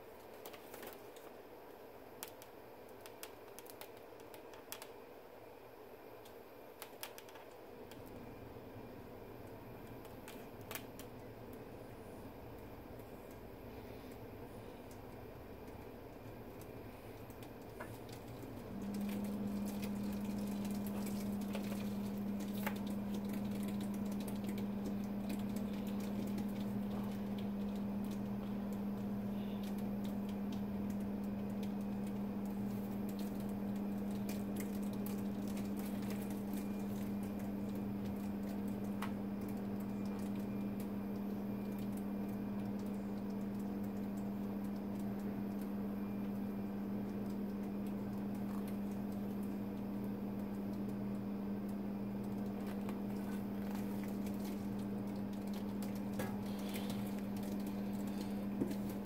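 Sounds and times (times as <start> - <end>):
low electric hum: 0.0 - 59.0
faint clicks and taps: 0.2 - 1.4, 2.2 - 5.0, 6.2 - 8.2, 9.4 - 11.6, 12.5 - 59.0.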